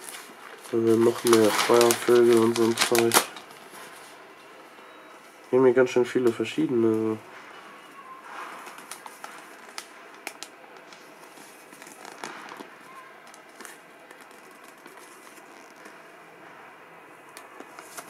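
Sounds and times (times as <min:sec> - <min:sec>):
glossy paper crinkling: 0:00.0 - 0:04.2, 0:08.2 - 0:16.1, 0:17.3 - 0:18.0.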